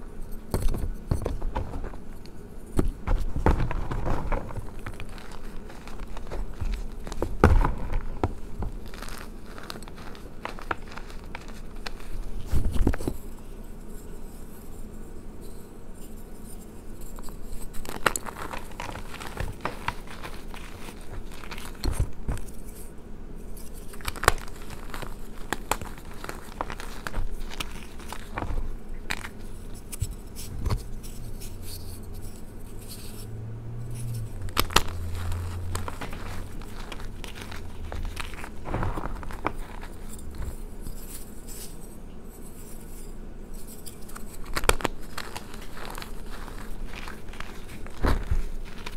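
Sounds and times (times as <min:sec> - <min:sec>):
powdery squeezing and scraping: 0:00.0 - 0:48.9
chalk blocks crunching and snapping: 0:00.5 - 0:13.3, 0:17.1 - 0:22.9, 0:23.6 - 0:33.2, 0:34.0 - 0:42.6, 0:43.7 - 0:48.9.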